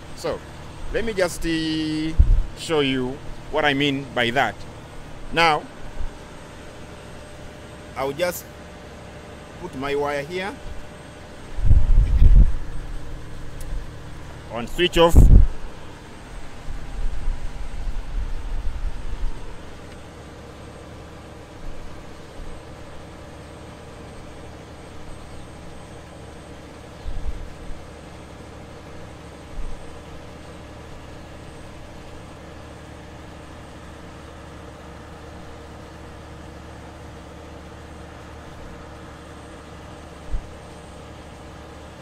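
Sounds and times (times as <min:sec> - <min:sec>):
mechanical hum: 0:00.0 - 0:42.0
dull low thumps: 0:02.2 - 0:02.6, 0:11.6 - 0:12.7.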